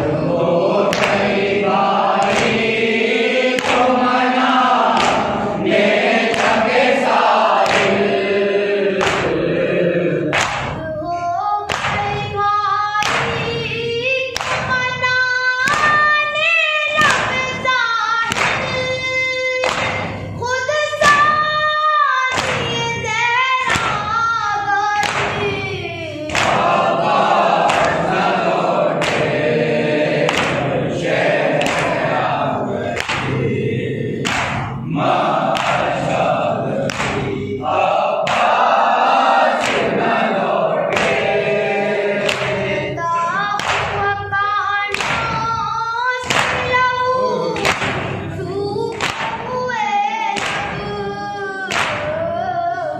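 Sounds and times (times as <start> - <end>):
group chanting: 0.0 - 11.1, 13.0 - 21.6, 22.2 - 52.9
boy reciting into a microphone: 10.2 - 27.0, 27.6 - 29.2, 42.6 - 52.9
chest beating thumps: 26.3 - 43.0.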